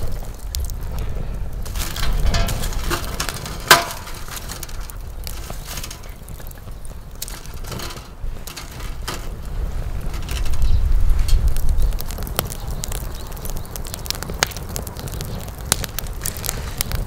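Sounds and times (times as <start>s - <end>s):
firewood logs knocking: 0.0s - 10.6s, 11.4s - 17.0s
wood fire crackling: 0.0s - 17.0s.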